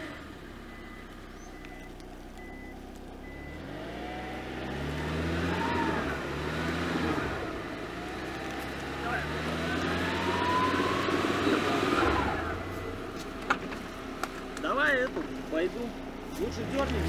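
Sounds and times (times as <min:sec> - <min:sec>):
faint beeping: 0:00.0 - 0:03.8, 0:09.4 - 0:13.2
car engine revving hard: 0:03.2 - 0:13.0, 0:16.4 - 0:17.0.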